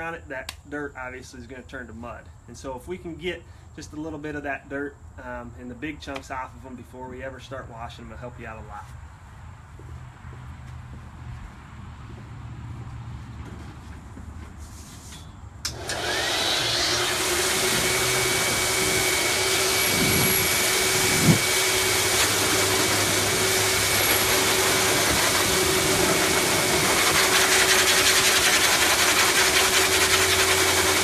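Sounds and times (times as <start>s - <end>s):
blower switch click: 15.6s - 16.1s
blower rushing air with motor whine: 15.6s - 31.0s.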